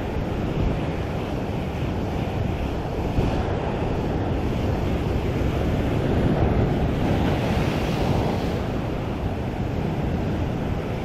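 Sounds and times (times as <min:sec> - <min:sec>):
wind buffeting microphone: 0:00.0 - 0:11.0
surf breaking over rocks: 0:02.7 - 0:11.0.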